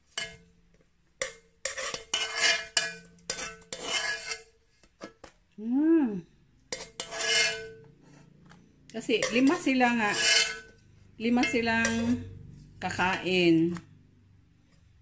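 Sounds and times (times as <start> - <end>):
spoon scraping plastic container: 1.6 - 5.3, 6.7 - 13.1.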